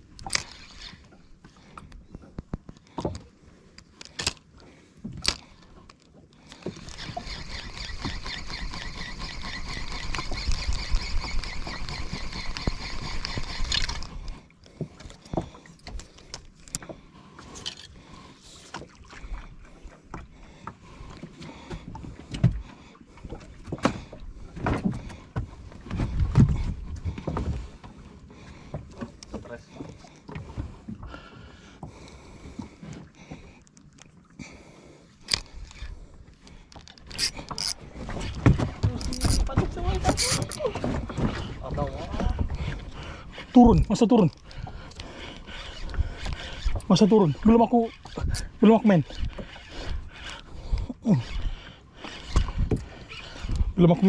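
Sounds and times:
fishing reel gears whirring: 0:00.1 - 0:01.9, 0:06.4 - 0:14.5, 0:35.2 - 0:53.8.

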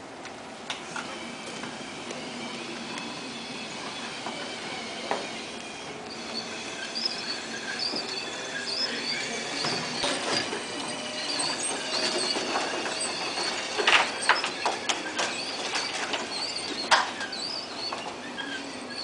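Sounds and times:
robot treads running: 0:02.2 - 0:18.3
high squeaks: 0:02.5 - 0:19.0.

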